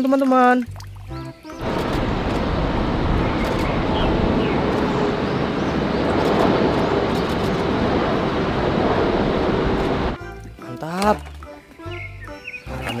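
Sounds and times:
jet engines rumbling: 1.6s - 10.2s.

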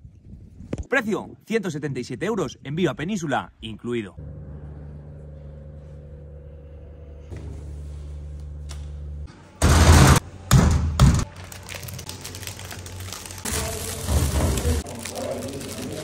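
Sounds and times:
steady low hum: 3.5s - 10.2s
foil-lined bag crinkling: 11.2s - 16.0s.

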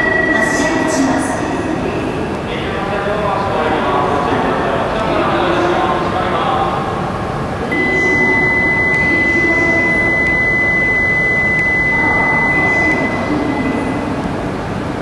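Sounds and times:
station and train hum: 0.0s - 15.0s
high electronic tone: 7.7s - 14.1s.

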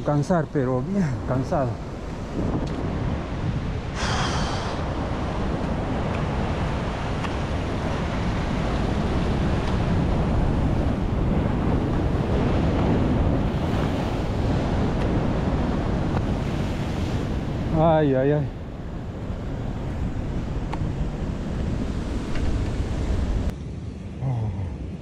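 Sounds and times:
wind buffeting microphone: 0.0s - 23.6s
surf washing against rocks: 0.3s - 18.8s.

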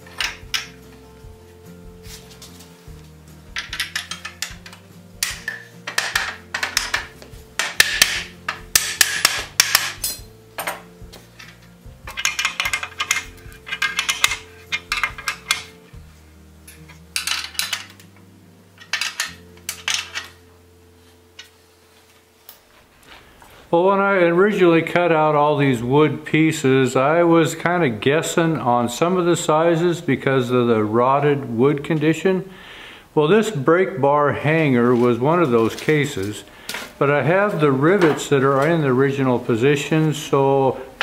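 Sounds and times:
metal clinking and rattling: 0.0s - 0.8s, 3.5s - 15.8s, 16.6s - 18.1s, 18.8s - 20.4s
soft background music: 0.0s - 41.0s.

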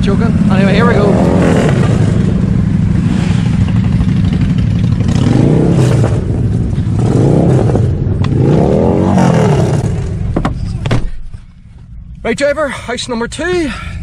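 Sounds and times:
motorcycle engines rumbling: 0.0s - 14.0s.

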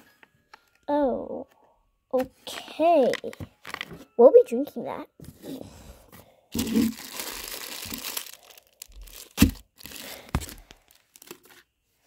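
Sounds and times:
sachet crinkling: 6.6s - 11.7s.

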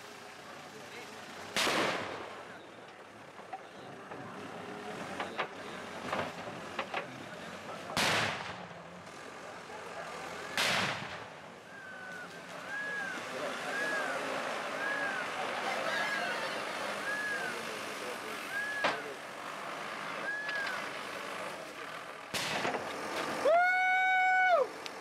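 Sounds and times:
firecracker bangs: 1.6s - 2.4s, 8.0s - 8.6s, 10.5s - 11.3s, 22.3s - 22.8s.

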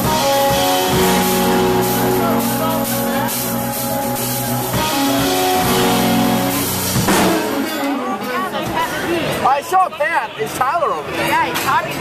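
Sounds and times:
rock guitar chords: 0.0s - 9.1s
drum kit strikes: 0.0s - 9.4s.

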